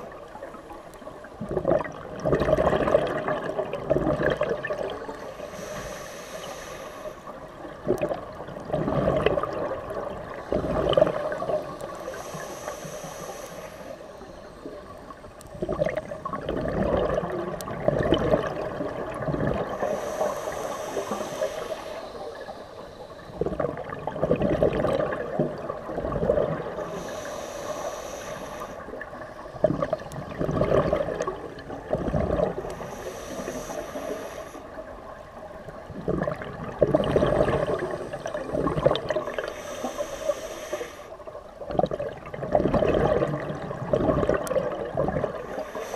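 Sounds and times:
exhaled air bubbling and gurgling: 0:00.0 - 0:45.9
regulator hissing inhale: 0:05.1 - 0:07.6, 0:11.6 - 0:14.9, 0:19.7 - 0:23.5, 0:26.7 - 0:29.6, 0:32.6 - 0:35.0, 0:39.2 - 0:41.4, 0:45.4 - 0:45.9.

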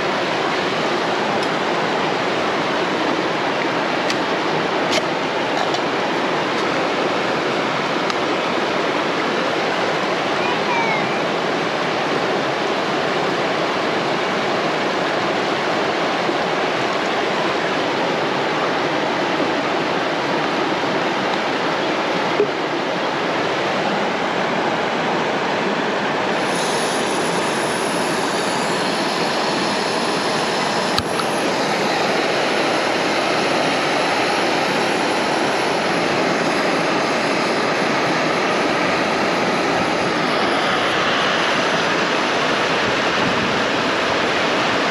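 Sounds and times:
river rapids rushing: 0:00.0 - 0:44.9
gas stove hissing: 0:26.4 - 0:32.5.

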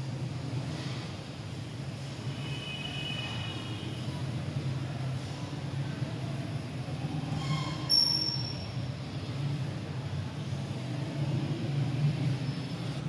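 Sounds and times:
sharp high-pitched squeal: 0:07.2 - 0:08.9.

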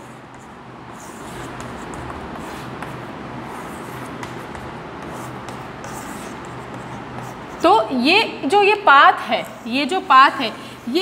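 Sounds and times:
chalk scratching on blackboard: 0:00.0 - 0:07.8.

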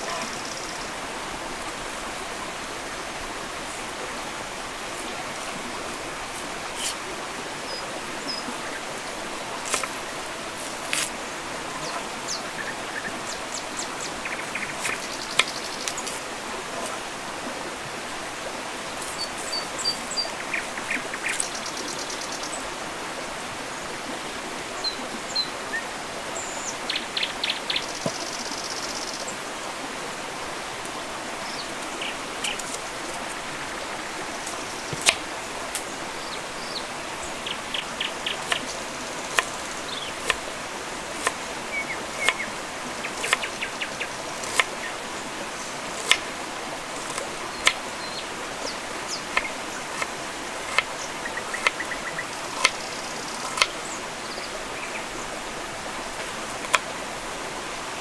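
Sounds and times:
birds chirping: 0:00.0 - 0:01.2, 0:10.9 - 0:16.2, 0:18.9 - 0:22.7, 0:24.8 - 0:29.4, 0:31.3 - 0:35.1, 0:35.8 - 0:40.4, 0:41.2 - 0:46.2
steady hiss: 0:00.0 - 0:58.0.

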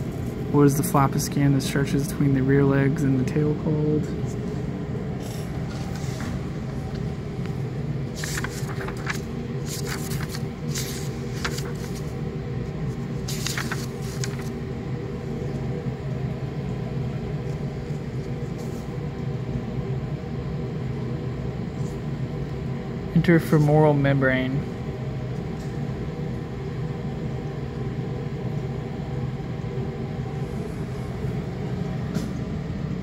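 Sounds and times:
room ventilation hum: 0:00.0 - 0:33.0
paper rustling: 0:05.2 - 0:15.7.

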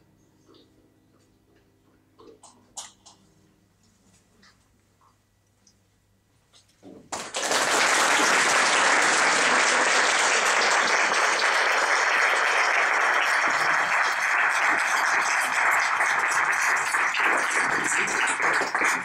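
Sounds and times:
audience applauding: 0:07.1 - 0:19.0.

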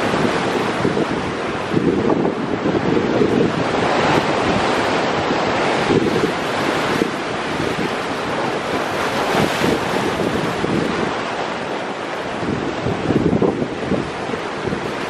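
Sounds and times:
ocean surf against rocks: 0:00.0 - 0:15.0
wind buffeting microphone: 0:00.0 - 0:15.0.

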